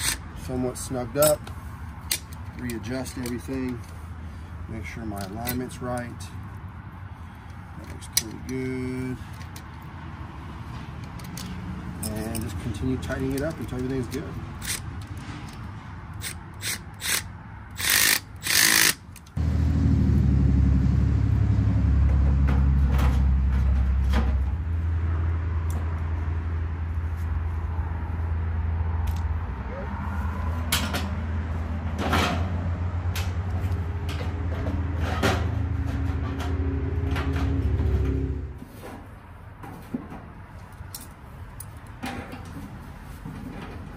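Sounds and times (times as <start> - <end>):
hand ratchet clicking: 0.0 - 0.2, 11.1 - 14.9, 16.2 - 19.4.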